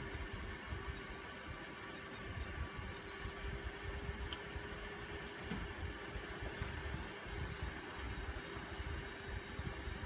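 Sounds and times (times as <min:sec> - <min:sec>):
high-pitched coil whine: 0:00.0 - 0:03.6, 0:07.3 - 0:10.0
low hum and rumble: 0:00.0 - 0:10.0.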